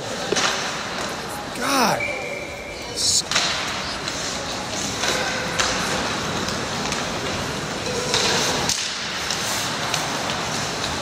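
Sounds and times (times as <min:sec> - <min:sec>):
skates carving ice: 0:00.0 - 0:11.0
sharp skate scrapes: 0:03.3 - 0:11.0.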